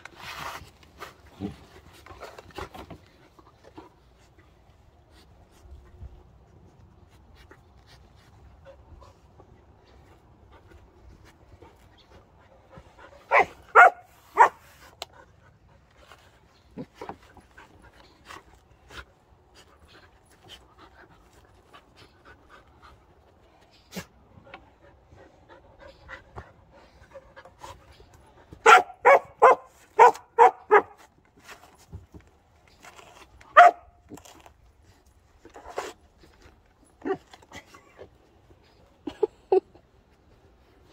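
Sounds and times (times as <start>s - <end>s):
paws scratching in dirt: 0.0s - 39.0s
puppy barking: 13.3s - 14.6s, 28.6s - 31.0s, 33.6s - 33.9s.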